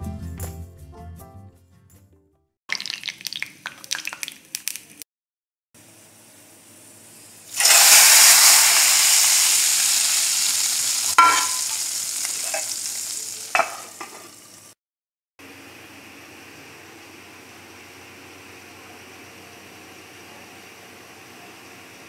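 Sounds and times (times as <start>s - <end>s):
hot oil sizzling: 2.7s - 5.0s, 5.8s - 14.8s.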